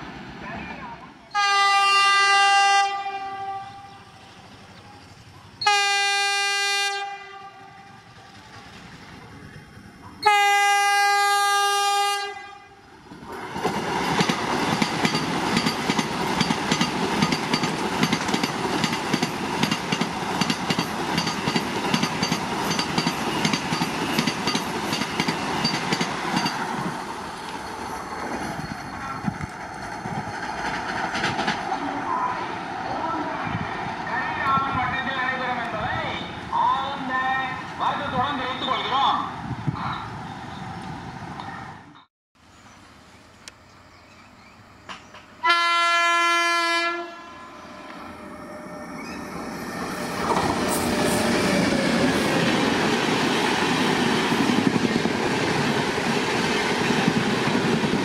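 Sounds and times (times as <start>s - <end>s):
train passing at speed: 0.0s - 58.0s
train horn blasts: 1.3s - 4.1s, 5.6s - 8.1s, 10.2s - 12.8s, 45.4s - 48.3s
wheels clattering over rail joints: 13.2s - 32.0s.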